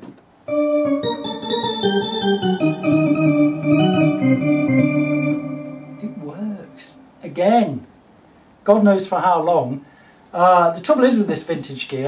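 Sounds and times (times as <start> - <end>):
electronic organ playing: 0.5 - 7.2.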